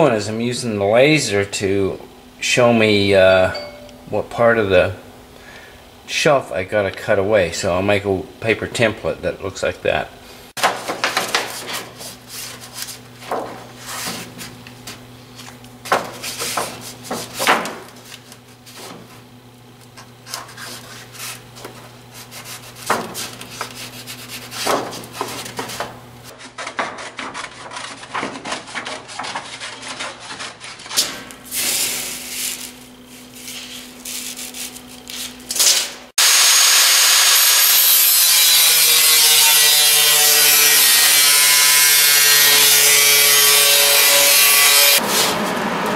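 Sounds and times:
low steady hum: 0.2s - 10.4s
paper rustling and scraping: 10.6s - 19.3s, 19.9s - 35.8s
angle grinder cutting sheet metal: 35.5s - 45.9s.

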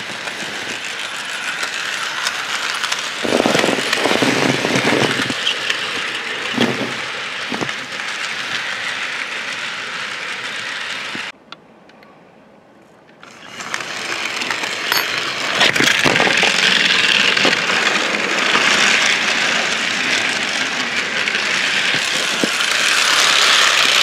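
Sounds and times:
model train wheels rattling: 0.0s - 11.3s, 13.2s - 24.0s.

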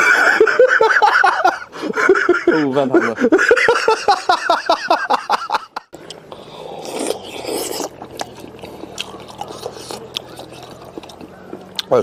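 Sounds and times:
man laughing: 0.0s - 5.9s
man slurping and chewing: 6.1s - 11.8s.

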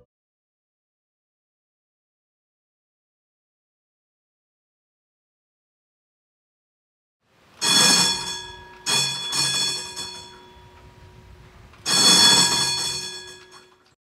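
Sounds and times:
tram bell ringing: 7.6s - 13.9s.

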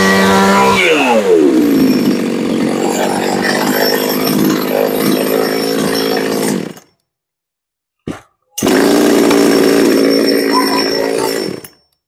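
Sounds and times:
chainsaw engine idling: 0.6s - 6.7s, 8.6s - 11.6s.

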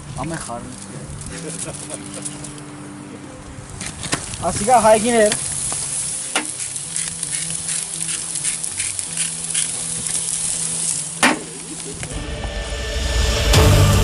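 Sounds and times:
steaks sizzling on grill: 0.0s - 12.2s
metal grill lid clank: 11.2s - 11.6s.

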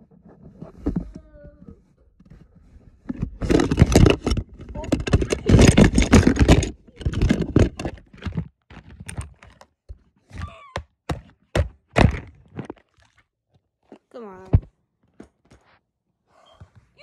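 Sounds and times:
phone handling scraping: 3.0s - 9.6s
thunks and knocks: 3.1s - 12.4s.

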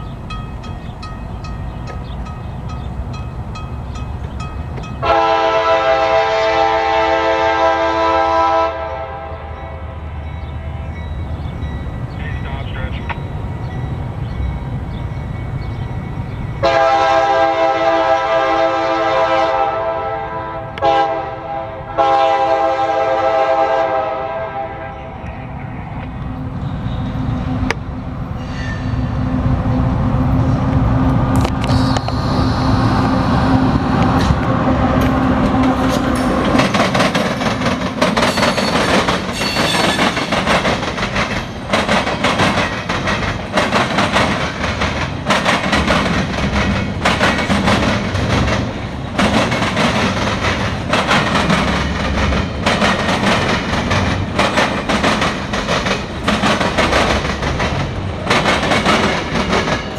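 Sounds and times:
locomotive droning: 0.0s - 59.9s
train wheels clacking over rail joints: 34.0s - 59.9s.

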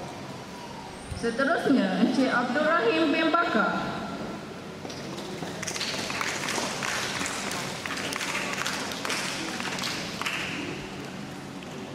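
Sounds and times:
audience clapping: 5.5s - 10.8s.

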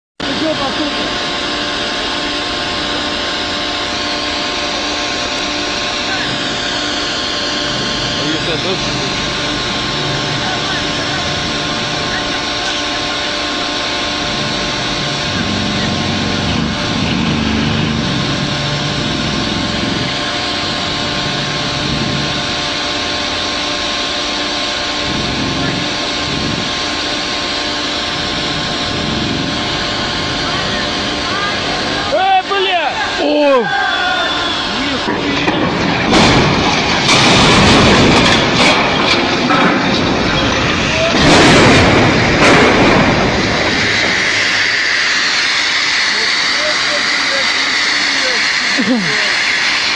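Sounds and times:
heavy metal rumbling clatter: 0.2s - 32.2s, 34.9s - 48.6s
diesel engine running: 0.2s - 49.9s
sharp metal bangs: 35.2s - 46.4s.

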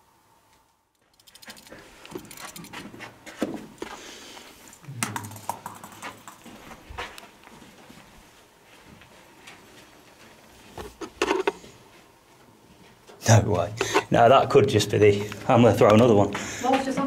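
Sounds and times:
handling rustling and scuffing: 1.4s - 4.8s, 6.2s - 14.1s.

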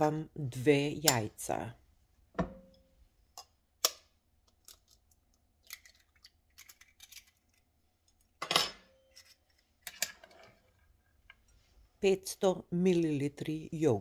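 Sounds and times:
egg shell crackling: 3.9s - 8.4s.

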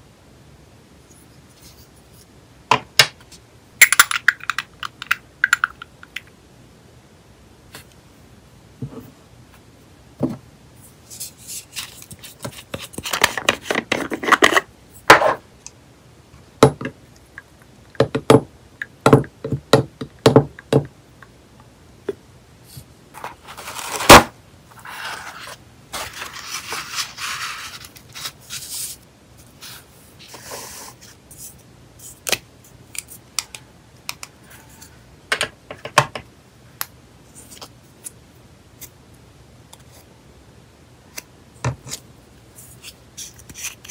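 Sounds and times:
soft paper rustling: 10.8s - 14.5s, 22.7s - 33.2s.

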